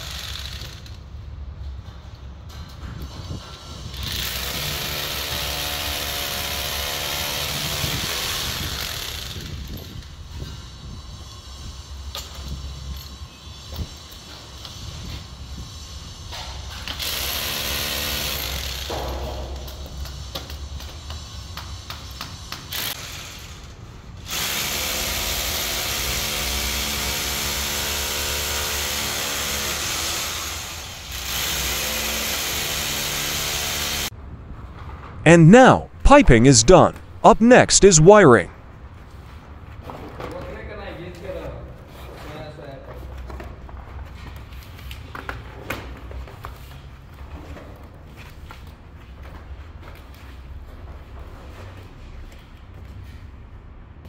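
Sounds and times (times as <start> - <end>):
power drill drilling into concrete: 24.3 - 34.1.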